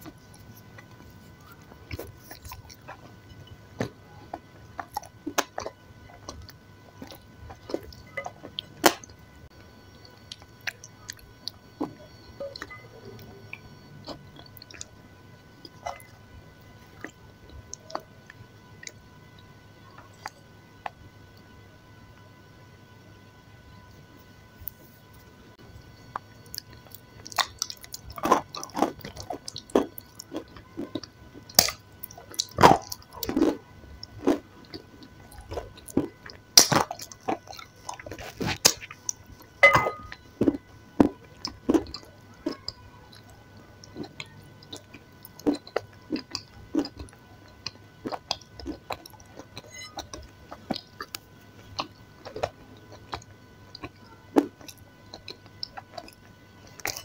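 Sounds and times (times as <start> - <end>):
wet chewing and lip-smacking: 0.0 - 3.2, 26.1 - 57.0.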